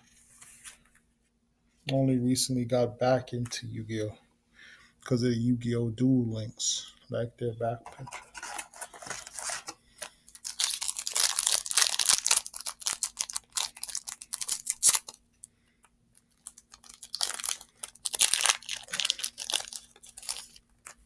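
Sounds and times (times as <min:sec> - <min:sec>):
foil wrapper tearing and crinkling: 0:08.4 - 0:15.2, 0:16.3 - 0:21.0.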